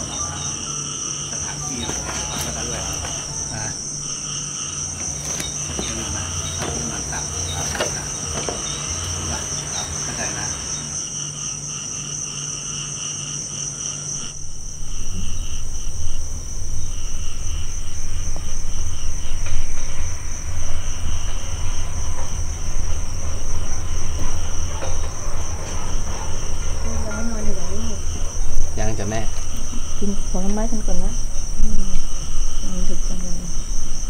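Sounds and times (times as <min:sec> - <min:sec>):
crickets chirping: 0:00.0 - 0:34.0
loud low rumble: 0:14.2 - 0:34.0.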